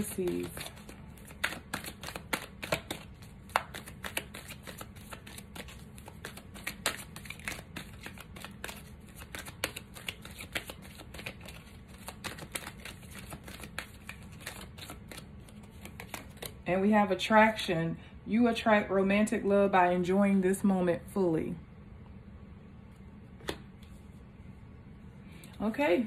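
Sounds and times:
cards being shuffled: 0:00.0 - 0:16.6, 0:23.4 - 0:24.1.

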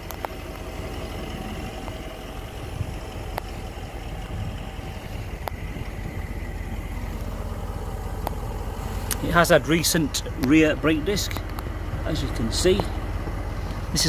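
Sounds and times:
car engine idling: 0:00.0 - 0:14.0
faint clicks: 0:03.3 - 0:03.6, 0:05.4 - 0:05.6, 0:08.2 - 0:08.4.

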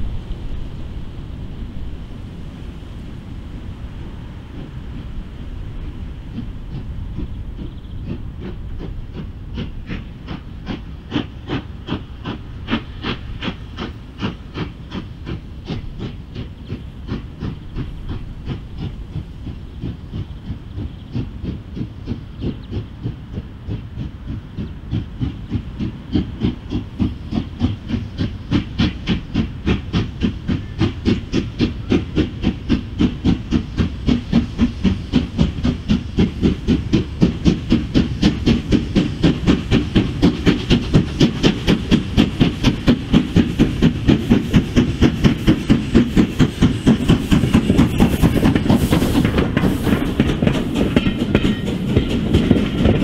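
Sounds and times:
low rumble: 0:00.0 - 0:09.2
steam locomotive chuffing: 0:00.0 - 0:53.0.

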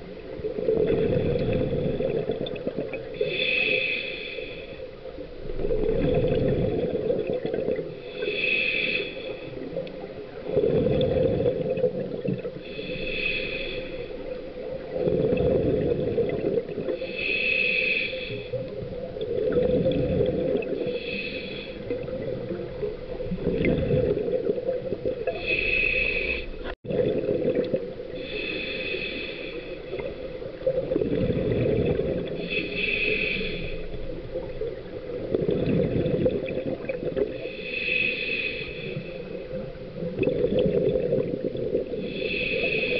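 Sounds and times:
bubbling exhaled air: 0:00.5 - 0:04.6, 0:05.6 - 0:09.8, 0:10.4 - 0:42.9
hissing regulator inhale: 0:03.2 - 0:05.0, 0:08.0 - 0:09.8, 0:12.6 - 0:14.4, 0:16.9 - 0:18.8, 0:20.7 - 0:22.1, 0:25.3 - 0:26.7, 0:28.2 - 0:30.3, 0:32.3 - 0:34.0, 0:37.2 - 0:39.6, 0:41.9 - 0:42.9.

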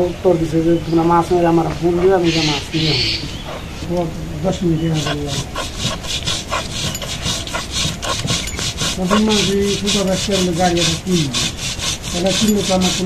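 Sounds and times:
roller rasping on wooden board: 0:04.8 - 0:13.0.

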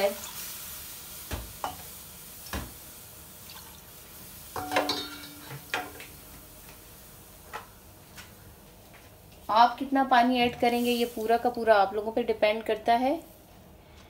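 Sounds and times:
faint steady hiss: 0:00.0 - 0:14.0
kitchenware clinking: 0:04.6 - 0:06.0.

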